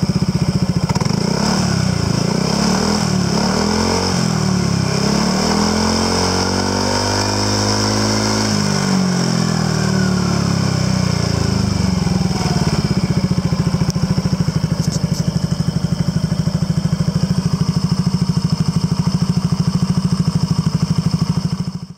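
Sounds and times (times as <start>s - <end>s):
scooter engine revving and idling: 0.0s - 21.9s.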